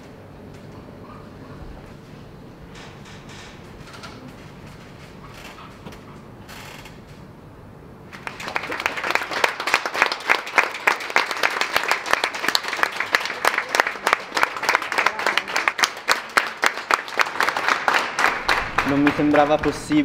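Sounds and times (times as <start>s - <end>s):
low background hum: 0.0s - 20.0s
people clapping: 8.1s - 20.0s.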